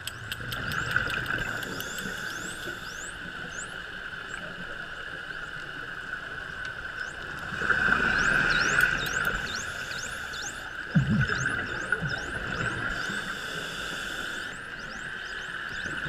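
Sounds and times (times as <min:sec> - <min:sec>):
dolphin clicks: 0:00.0 - 0:03.1, 0:08.2 - 0:10.7
steady underwater hum: 0:00.0 - 0:16.0
dolphins whistling underwater: 0:00.1 - 0:04.4, 0:07.0 - 0:16.0.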